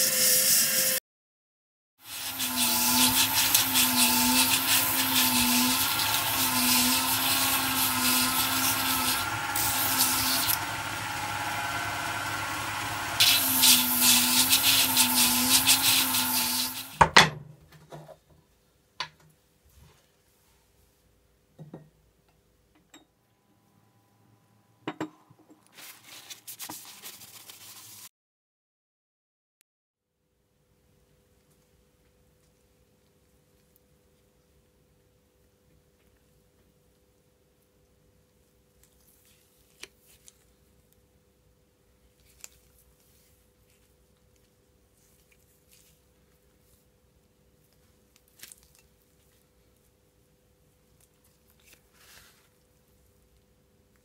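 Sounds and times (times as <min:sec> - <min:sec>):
blade grinding on belt grinder: 0:00.0 - 0:01.0, 0:02.0 - 0:17.0
motor hum: 0:02.2 - 0:16.9
soft rustle: 0:25.7 - 0:28.0, 0:38.4 - 0:40.8, 0:42.0 - 0:50.2, 0:50.9 - 0:53.5.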